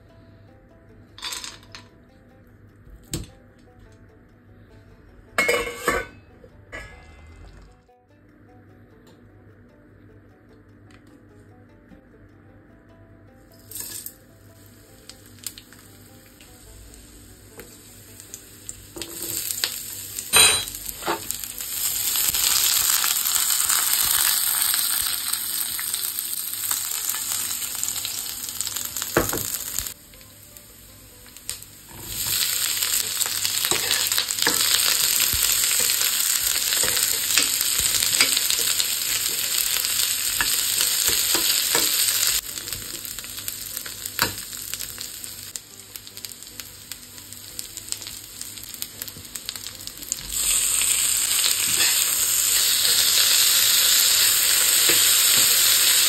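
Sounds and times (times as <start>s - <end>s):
food sizzling in hot oil: 5.4s - 6.1s, 13.6s - 56.0s
metal spoon scraping a pan: 5.4s - 7.3s, 31.9s - 42.4s, 50.3s - 56.0s.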